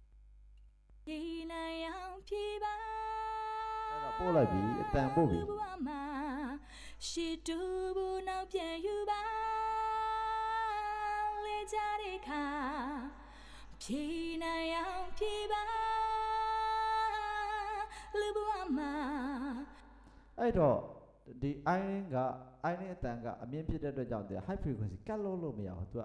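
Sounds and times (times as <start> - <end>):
person singing with reverb: 1.1 - 19.8
singer breathing: 6.6 - 7.0, 13.2 - 13.8, 19.7 - 20.4.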